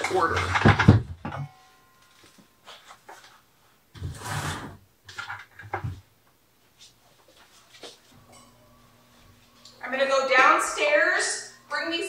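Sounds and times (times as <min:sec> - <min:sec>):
plastic bucket scraping: 0:03.9 - 0:05.8.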